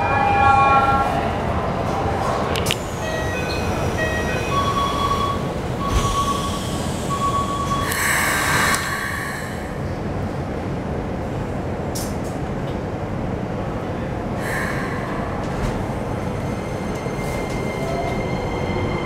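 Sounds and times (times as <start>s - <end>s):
train doors shutting: 0.0s - 9.9s, 14.4s - 19.0s
train rumble: 0.0s - 19.0s.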